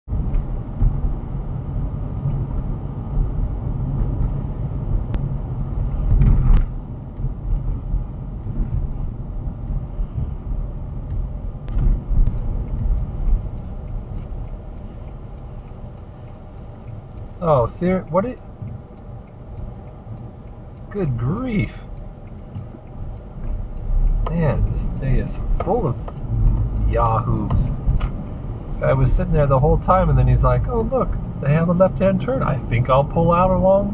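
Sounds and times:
car road rumble: 0:00.0 - 0:33.9
short thumps: 0:24.2 - 0:28.2.

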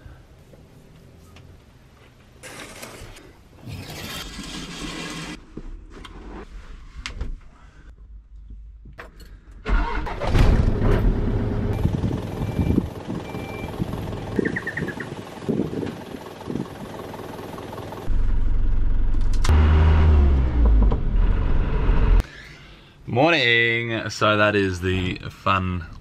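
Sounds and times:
bus engine starting and running: 0:09.1 - 0:22.4.

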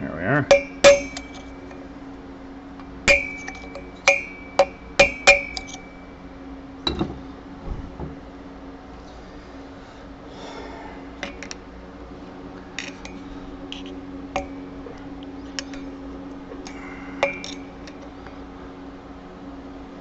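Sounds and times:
steady low hum: 0:00.0 - 0:20.0
metal tools clinking and scraping: 0:03.1 - 0:06.0, 0:17.2 - 0:18.1.

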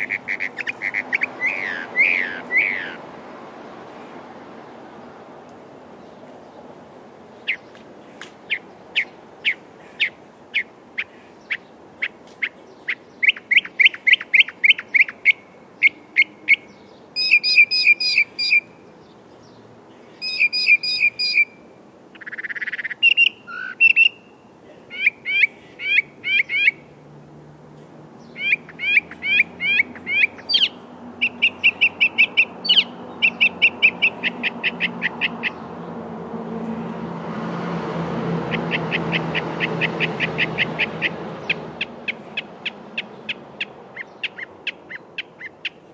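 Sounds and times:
mockingbird singing varied phrases: 0:00.0 - 0:03.0, 0:07.4 - 0:07.8, 0:08.5 - 0:18.8, 0:20.1 - 0:26.9, 0:28.2 - 0:35.6, 0:38.5 - 0:45.9.

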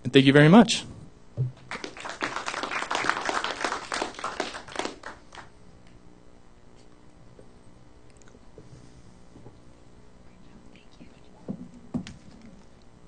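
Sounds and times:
audience applauding: 0:01.6 - 0:05.5.

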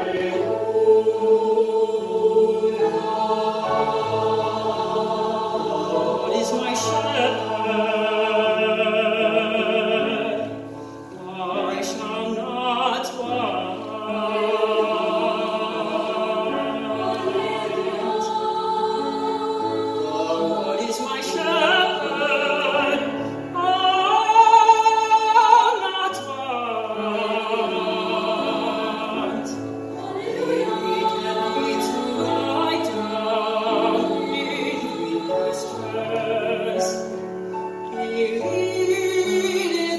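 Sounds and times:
choir sustaining chords: 0:00.0 - 0:39.9
man singing with vibrato: 0:06.2 - 0:10.5, 0:11.2 - 0:16.4.

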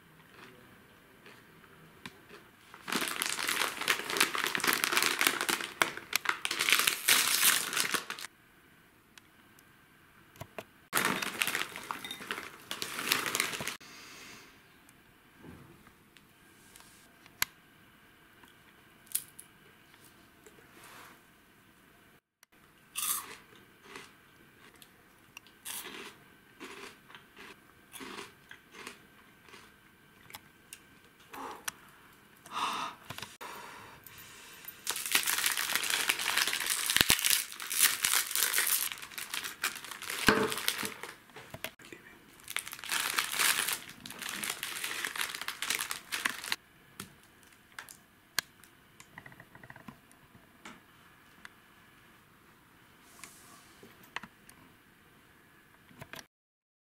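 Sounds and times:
plastic wrapper crinkling: 0:02.7 - 0:08.3, 0:10.9 - 0:13.8, 0:34.8 - 0:41.3, 0:42.3 - 0:46.6.

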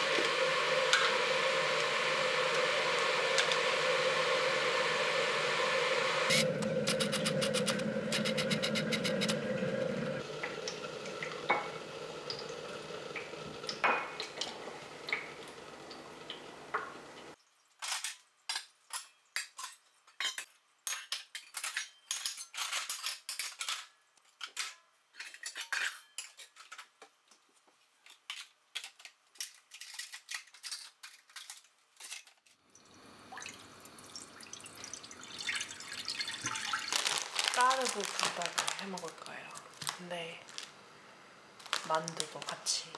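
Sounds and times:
water pouring into frying pan: 0:00.0 - 0:16.5, 0:32.8 - 0:39.9.

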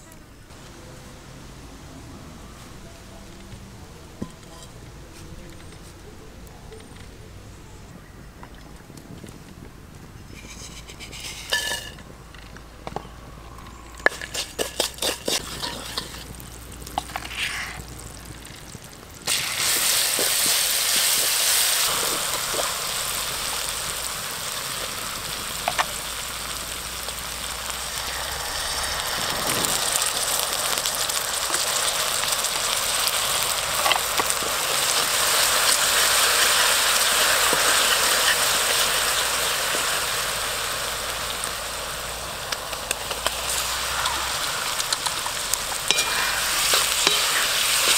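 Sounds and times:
food sizzling in hot oil: 0:10.4 - 0:12.5, 0:13.6 - 0:47.9.

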